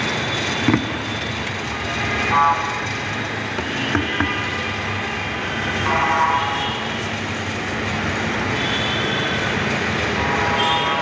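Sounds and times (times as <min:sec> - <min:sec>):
busy street traffic: 0:00.0 - 0:11.0
vehicle horn: 0:05.8 - 0:06.9.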